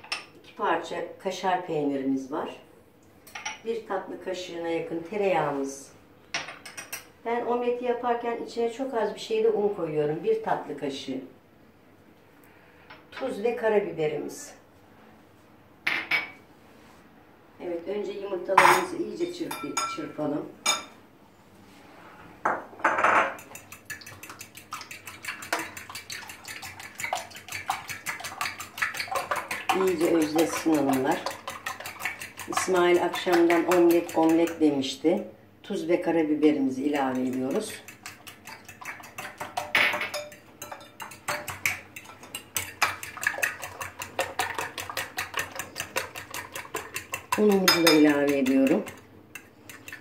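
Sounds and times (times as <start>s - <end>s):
eggs beaten in glass bowl: 23.2s - 35.2s, 36.6s - 50.0s.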